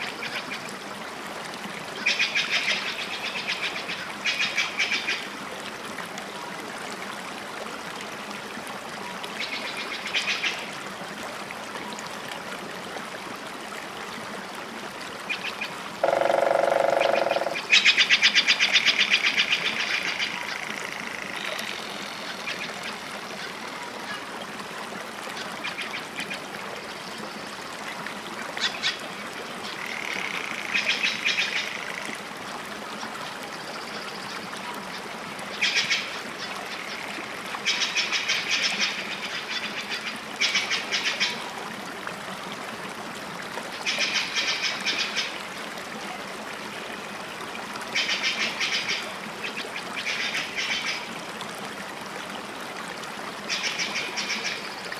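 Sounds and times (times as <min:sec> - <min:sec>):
outdoor background noise: 0:00.0 - 0:54.9
rattling animal calls: 0:16.0 - 0:17.6.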